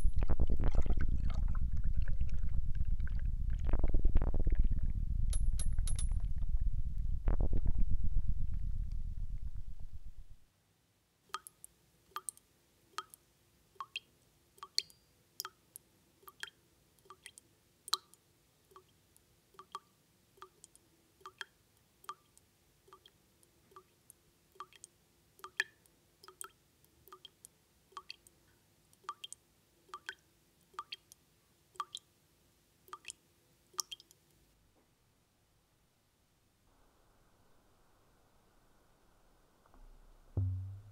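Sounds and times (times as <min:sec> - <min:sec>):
water dripping from a tap: 0:13.8 - 0:15.6, 0:24.6 - 0:27.4, 0:29.0 - 0:30.2, 0:31.8 - 0:32.0, 0:33.8 - 0:34.1.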